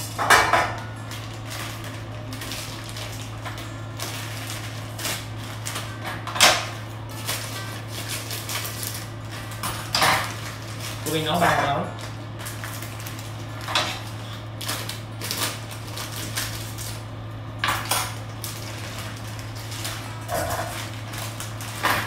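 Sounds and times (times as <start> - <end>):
steady low hum: 0.0 - 22.0
dishes and utensils clattering: 20.2 - 20.9.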